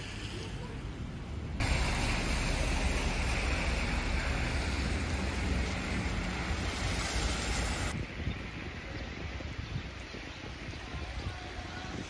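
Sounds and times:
cars on wet road: 0.0s - 9.4s
wind rumbling on microphone: 0.0s - 12.0s.

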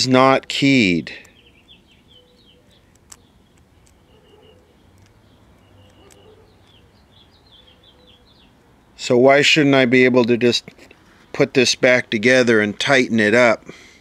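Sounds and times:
faint bird chirps: 1.2s - 9.0s
small clicks: 2.4s - 6.8s.

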